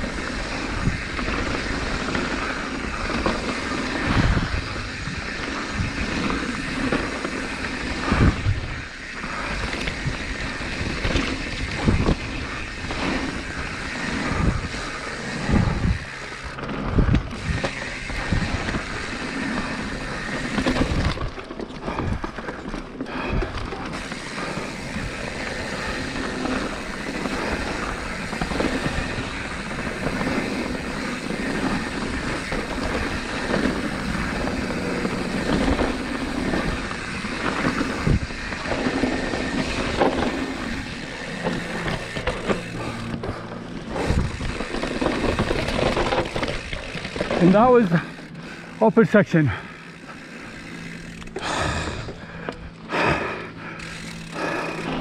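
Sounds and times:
tyres rumbling over stones: 0.0 - 49.4
bike rattling: 0.0 - 55.0
wind on microphone: 9.8 - 19.0.

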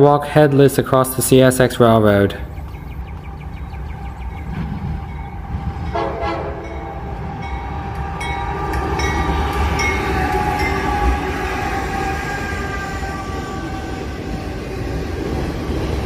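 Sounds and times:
diesel locomotives rumbling: 0.0 - 16.0
train horn steady chord: 5.8 - 15.0.

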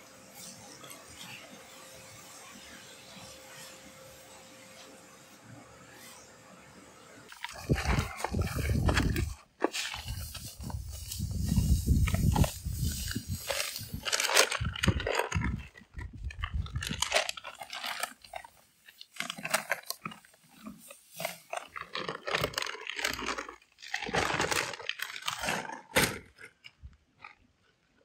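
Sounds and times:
powder pouring into bucket: 7.3 - 26.6
paper sack crackling: 7.3 - 27.4.

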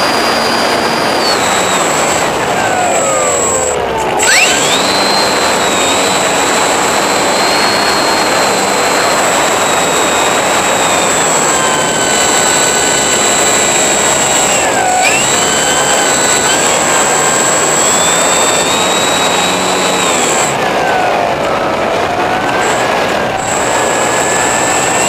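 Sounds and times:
model airplane motor whining: 0.0 - 25.0
steady rushing noise: 0.0 - 25.0.

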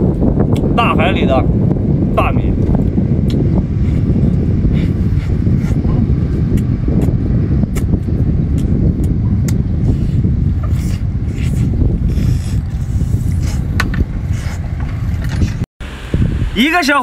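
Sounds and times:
wind rumble on microphone: 0.0 - 17.0
mouth clicks and smacks eating: 3.2 - 3.4, 6.5 - 9.6.

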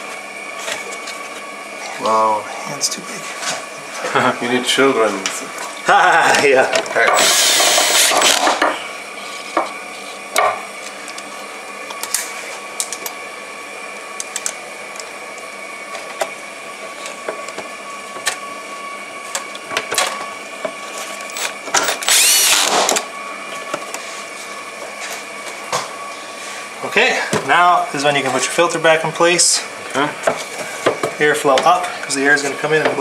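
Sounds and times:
cordless drill running in bursts: 7.1 - 8.6, 21.3 - 23.1.

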